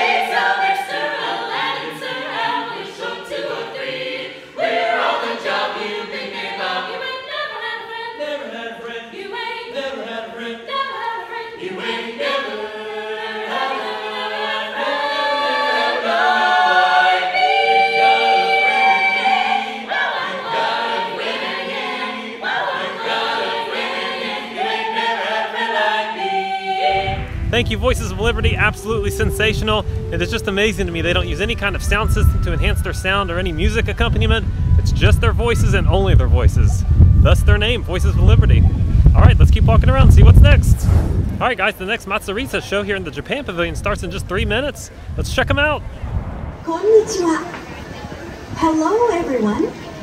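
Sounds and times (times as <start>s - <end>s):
vocal ensemble singing in harmony: 0.0s - 39.2s.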